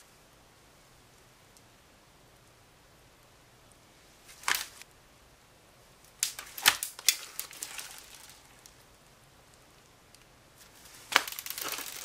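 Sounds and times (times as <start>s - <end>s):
slime popping and crackling: 6.1s - 8.8s, 10.9s - 12.0s.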